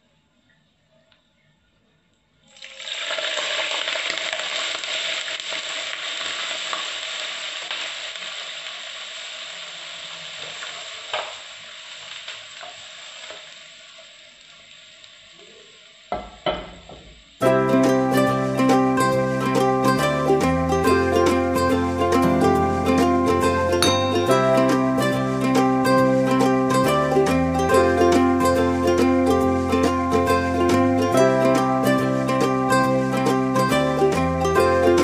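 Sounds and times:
hot liquid sizzling in a pot: 2.5 - 35.0
pans knocking: 16.1 - 17.2, 22.2 - 25.0.

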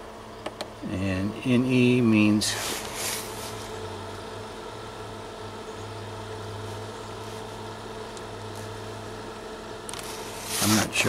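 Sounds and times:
fridge compressor humming: 0.0 - 11.0.

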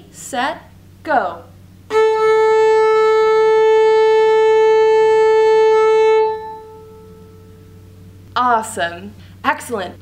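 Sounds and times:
violin bowed note: 1.9 - 7.9.

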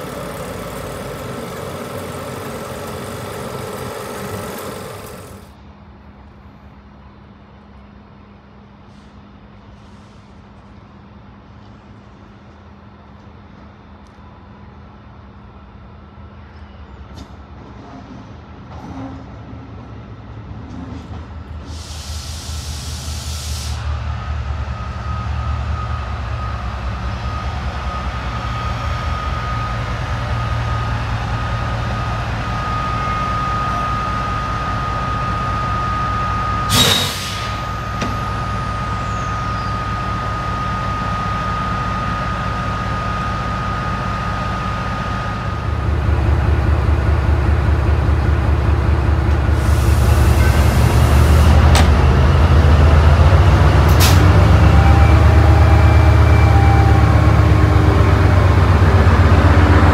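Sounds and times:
steady whine: 0.0 - 5.6
diesel train engine idling: 0.0 - 6.8, 21.5 - 59.9
air brake hiss: 8.8 - 10.6, 21.6 - 23.9, 36.7 - 38.0, 49.5 - 51.6, 53.9 - 54.3.

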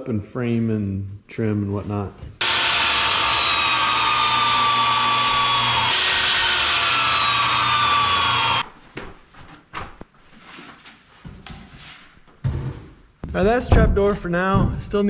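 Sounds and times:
table saw cutting wood: 2.4 - 8.6.

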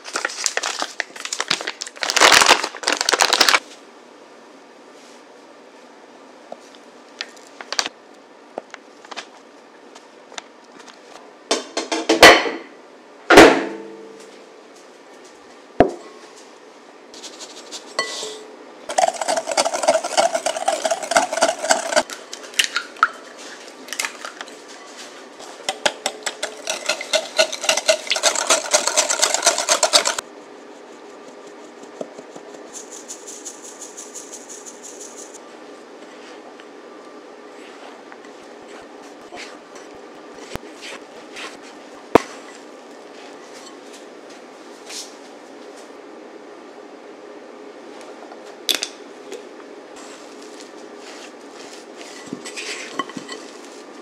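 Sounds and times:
powder sifting through sieve: 17.2 - 22.1, 26.3 - 35.4, 50.0 - 54.0
whisk clinking against glass bowl: 18.0 - 22.0, 26.0 - 30.2.

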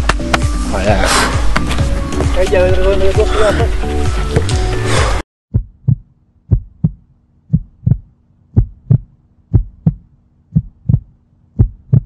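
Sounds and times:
heartbeat thumps: 5.5 - 12.0.

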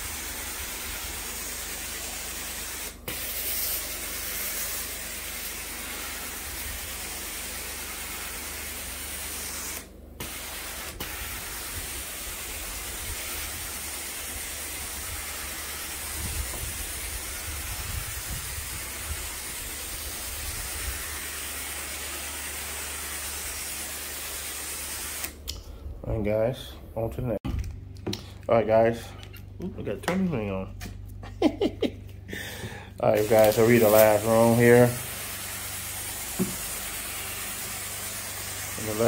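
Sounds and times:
carpet cleaner rushing hiss: 0.0 - 25.4, 32.3 - 39.0.

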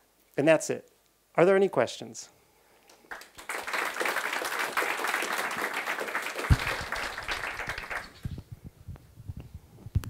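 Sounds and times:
audience applauding: 3.0 - 8.4.

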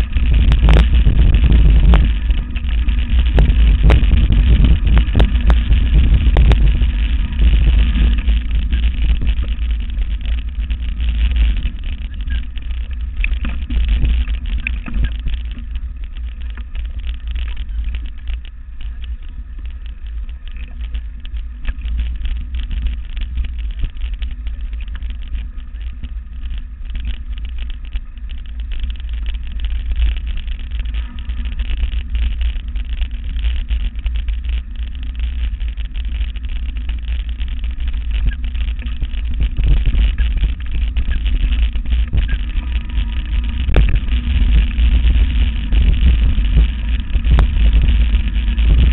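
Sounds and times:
bike rattles and knocks: 0.0 - 48.9
wind rumble on microphone: 0.0 - 48.9.

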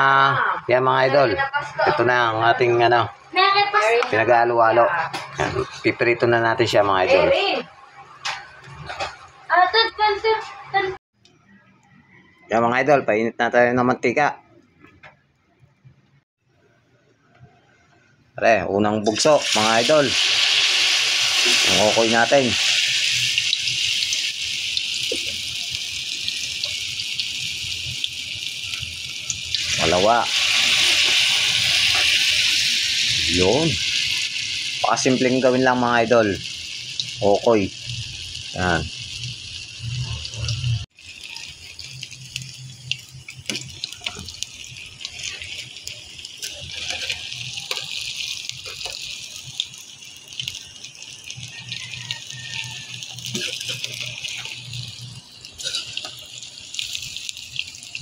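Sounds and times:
batter sizzling in hot oil: 19.0 - 58.0.

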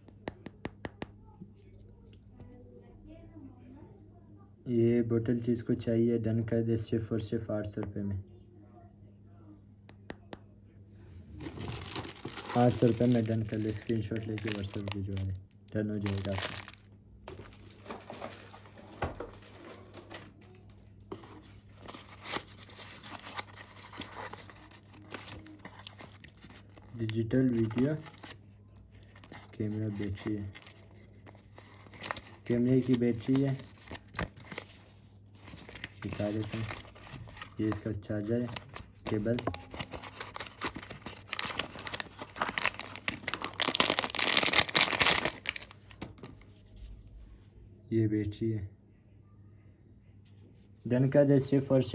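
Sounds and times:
plastic bag crinkling: 11.4 - 21.1, 29.0 - 34.8, 35.4 - 37.8, 38.4 - 46.4.

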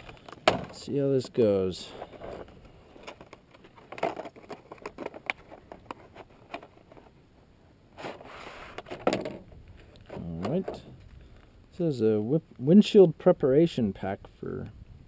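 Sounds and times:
packaging clicks and rustles: 0.0 - 7.2
packaging rustling scrape: 1.8 - 7.2.

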